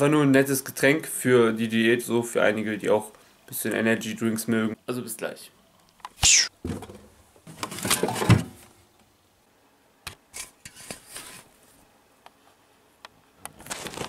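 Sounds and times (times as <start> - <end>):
rustling and clatter: 6.6 - 8.7, 13.5 - 14.0.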